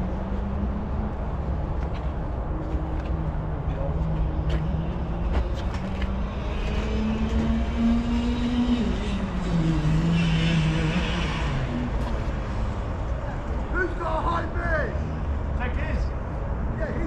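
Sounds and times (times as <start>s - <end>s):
kart engine at high revs: 4.2s - 12.8s.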